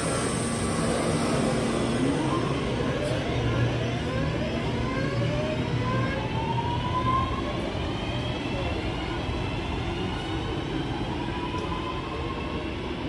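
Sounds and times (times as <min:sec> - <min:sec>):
diesel train engine humming: 0:00.0 - 0:03.0
train whine rising in pitch: 0:00.0 - 0:07.7.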